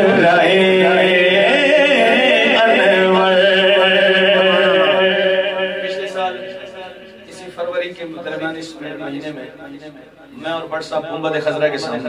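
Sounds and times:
man singing into a microphone: 0.0s - 7.4s
steady held low tone: 0.0s - 10.4s.

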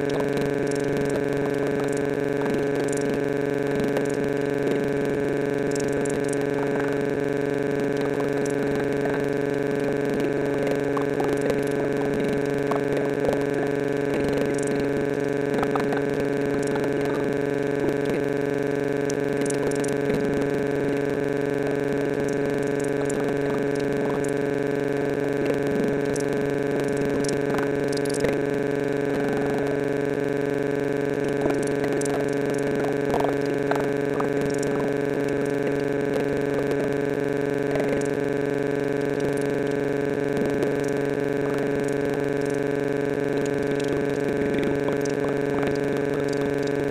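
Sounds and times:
loud drone of held tones: 0.0s - 46.9s.

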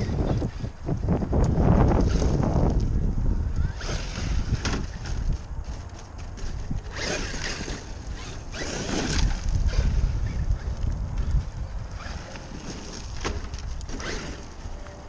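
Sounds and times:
wind buffeting microphone: 0.0s - 15.0s
rc truck electric motor: 1.5s - 14.8s
tyres tearing through gravel: 3.6s - 15.0s.

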